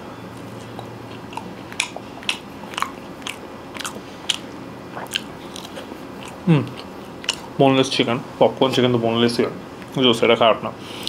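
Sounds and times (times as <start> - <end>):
person chewing crunchy food: 0.4 - 7.6.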